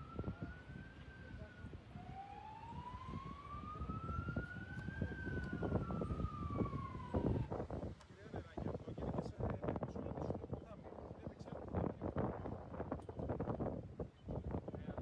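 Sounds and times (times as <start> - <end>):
emergency siren wailing: 0.0 - 7.6.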